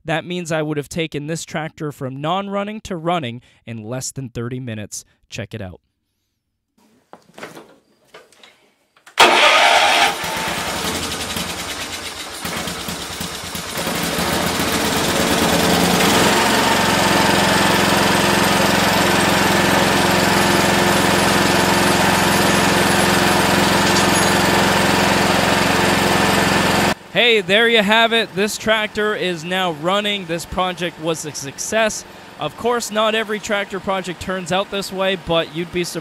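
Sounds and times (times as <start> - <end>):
starter motor engaging: 9.2 - 27.1
small engine running: 9.2 - 35.3.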